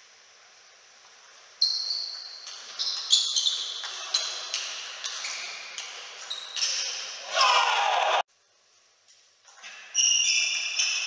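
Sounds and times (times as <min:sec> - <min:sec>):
ping pong ball clicking off bats: 0:01.2 - 0:07.2.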